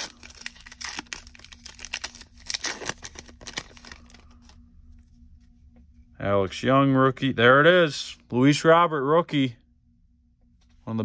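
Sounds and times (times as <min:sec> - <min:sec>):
wrapper tearing and crinkling: 0:00.0 - 0:04.2.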